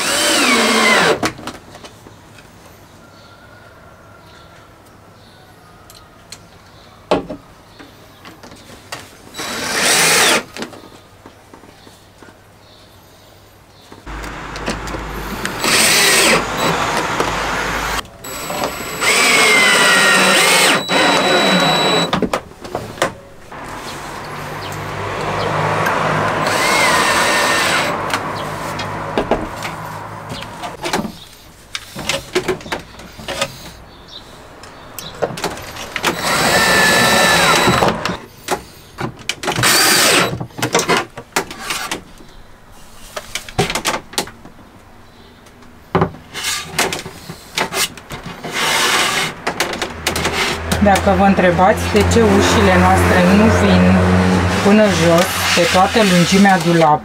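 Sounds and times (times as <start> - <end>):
cordless drill whining: 0.0 - 1.2, 9.4 - 10.5, 14.1 - 22.2, 26.4 - 28.0, 36.0 - 38.2, 39.6 - 40.3.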